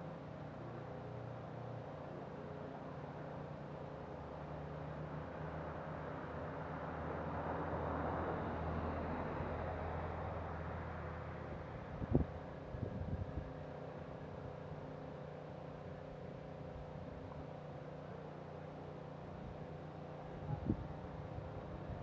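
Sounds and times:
distant vehicle engine hum: 0:00.0 - 0:22.0.

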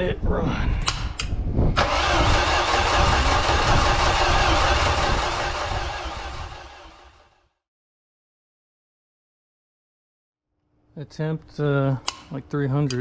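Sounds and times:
boat engine cranking: 0:01.8 - 0:06.6.

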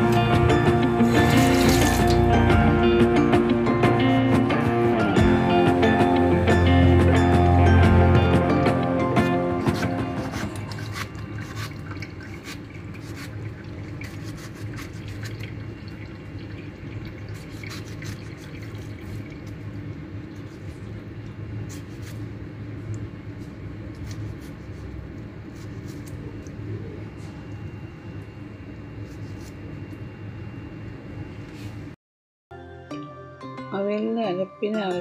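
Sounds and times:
steady low hum: 0:00.0 - 0:32.0
knife slicing tomato: 0:01.0 - 0:02.3, 0:09.2 - 0:13.4, 0:14.0 - 0:15.4, 0:17.4 - 0:19.6, 0:21.6 - 0:22.3, 0:23.9 - 0:26.5.

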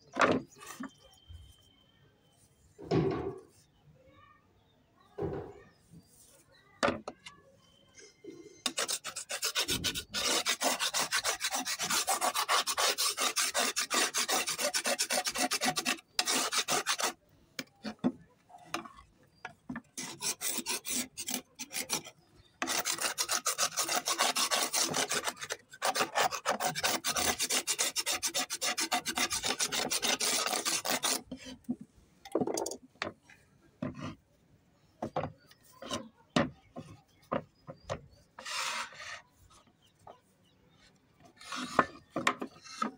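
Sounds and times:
stone slabs scraping: 0:08.7 - 0:17.2, 0:20.0 - 0:31.6, 0:38.4 - 0:39.2.

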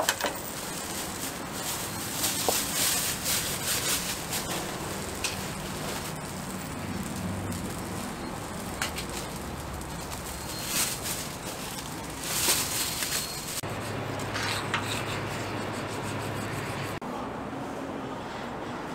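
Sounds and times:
plastic bags rustling: 0:00.0 - 0:14.4
steady background hum: 0:00.0 - 0:18.9.

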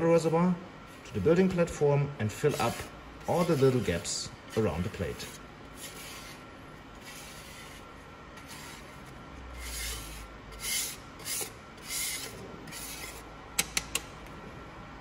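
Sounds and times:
plastic card scraping metal powder: 0:02.5 - 0:06.4.

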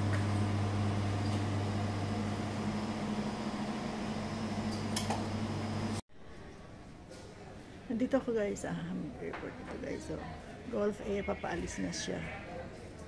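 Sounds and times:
cooling unit humming: 0:00.0 - 0:06.0.

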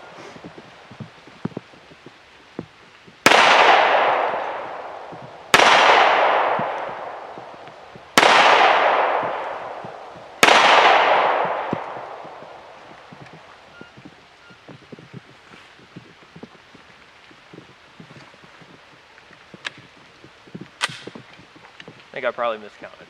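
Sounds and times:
pistol shots with echo: 0:03.2 - 0:13.0.

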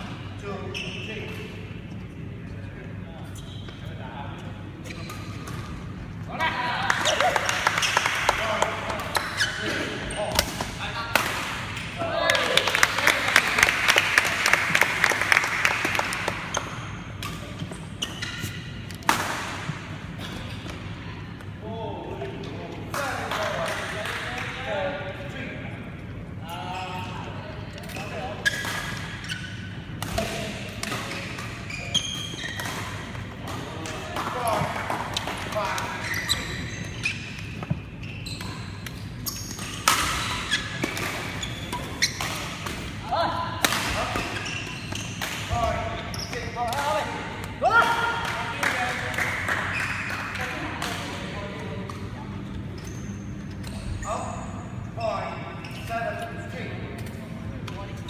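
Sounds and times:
shoes squeaking on court floor: 0:00.4 - 0:01.5, 0:03.0 - 0:06.2, 0:07.0 - 0:10.6, 0:16.2 - 0:19.0, 0:19.7 - 0:21.6, 0:26.5 - 0:27.2, 0:27.8 - 0:30.2, 0:30.8 - 0:43.0, 0:43.9 - 0:47.5, 0:49.6 - 0:50.5, 0:51.4 - 0:56.4
hand clapping in a large hall: 0:06.8 - 0:09.4, 0:12.2 - 0:16.8, 0:23.0 - 0:24.6, 0:47.8 - 0:51.0.

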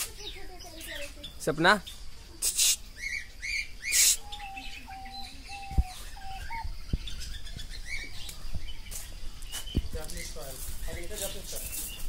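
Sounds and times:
birds chirping: 0:00.0 - 0:12.0
loud harsh bird calls: 0:00.1 - 0:12.0
whistled bird notes: 0:01.8 - 0:08.9.

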